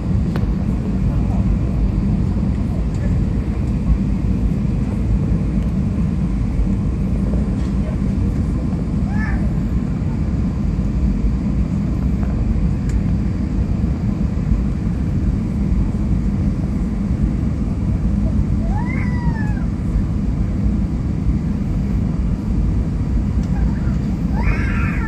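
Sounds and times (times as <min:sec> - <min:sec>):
airliner cabin rumble: 0:00.0 - 0:25.0.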